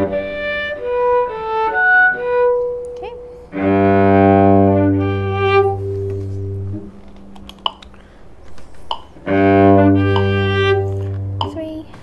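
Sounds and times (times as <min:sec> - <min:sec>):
cellos playing slow piece: 0:00.0 - 0:12.0
soft knocks: 0:10.1 - 0:10.4.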